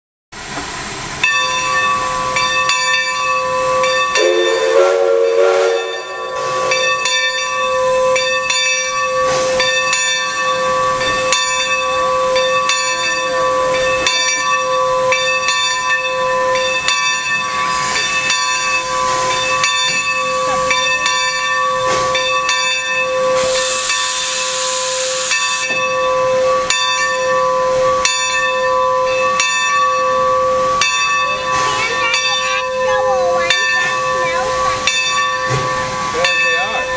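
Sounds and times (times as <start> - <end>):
steam locomotive venting steam: 0.4 - 36.9
wavering tone: 25.4 - 36.9.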